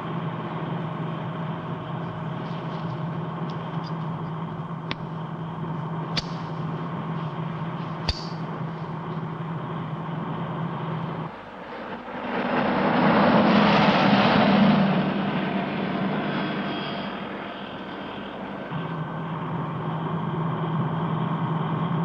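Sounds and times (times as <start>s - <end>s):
car engine hum: 0.0s - 22.0s
lighter clicks: 6.2s - 6.6s, 8.0s - 8.4s.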